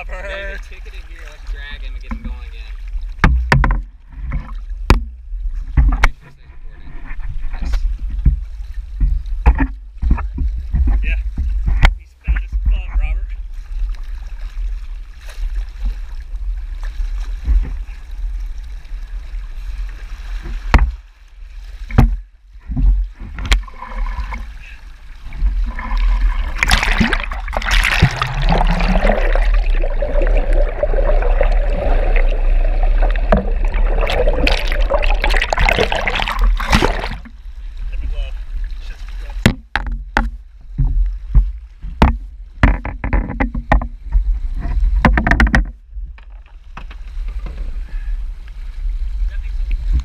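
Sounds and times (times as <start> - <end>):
sea water splashing and rushing: 0.0 - 6.2, 13.3 - 42.8
low steady rumble: 0.0 - 42.6
sharp knocks: 3.2 - 5.2, 39.4 - 43.9, 45.0 - 45.7
underwater churning rush: 21.8 - 39.9.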